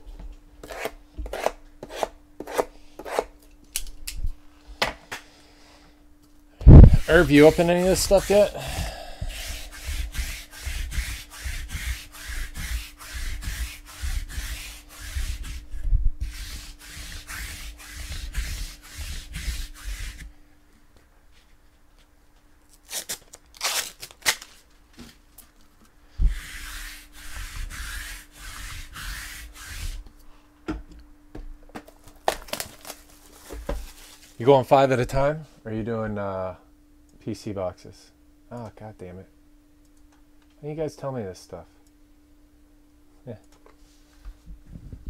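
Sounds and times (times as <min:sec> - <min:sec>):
rhythmic rubbing strokes: 0:06.7 - 0:20.2, 0:26.2 - 0:30.0.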